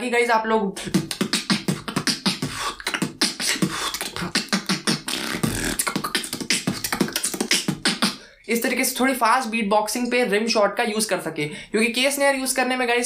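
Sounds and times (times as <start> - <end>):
person beatboxing: 0.7 - 9.0.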